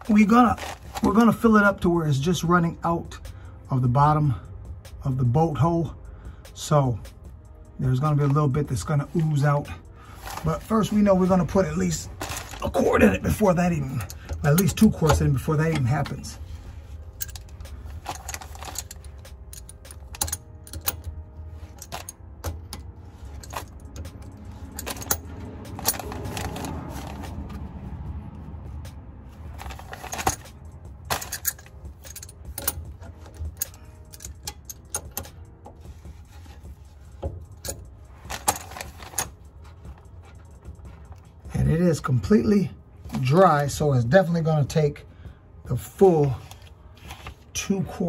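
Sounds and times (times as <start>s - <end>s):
hand tools clinking on metal: 0.0s - 1.6s, 8.8s - 27.4s, 29.5s - 41.4s
low steady hum: 9.7s - 41.8s.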